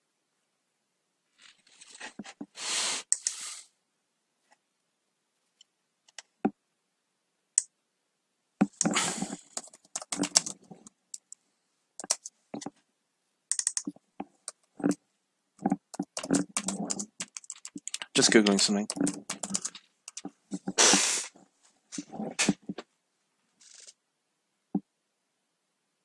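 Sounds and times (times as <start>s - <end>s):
computer keyboard typing: 8.6s - 11.4s, 12.0s - 12.7s, 13.5s - 15.0s, 15.6s - 20.8s.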